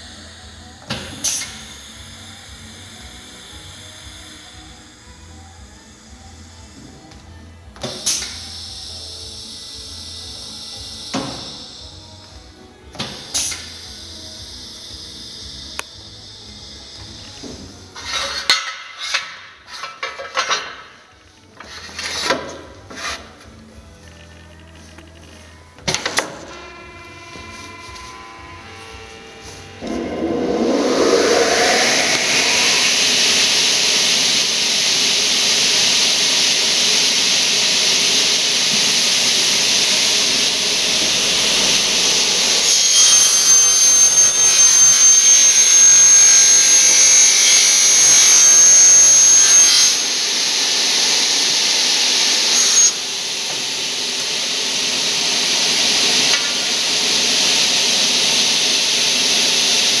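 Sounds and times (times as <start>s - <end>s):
circular saw whining: 25.8s - 60.0s
saw cutting metal with ringing: 26.1s - 35.0s, 41.2s - 53.1s.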